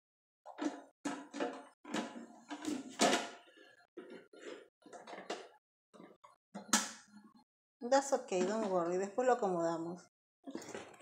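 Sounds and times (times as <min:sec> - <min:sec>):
plastic lid knocking and rattling: 0:00.5 - 0:03.4.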